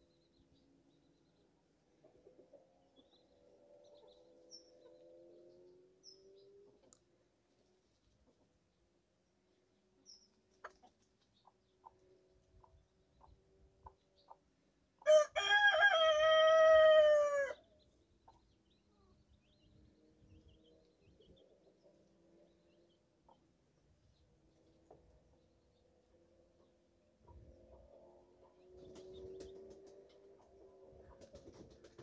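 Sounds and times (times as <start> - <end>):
faint ticks and peeps: 9.6 - 14.5, 17.6 - 25.9
rooster crowing: 15.0 - 17.6.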